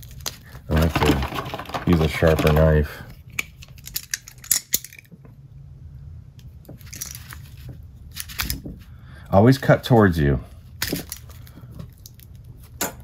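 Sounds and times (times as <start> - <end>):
plastic packet crinkling: 0.0 - 2.8.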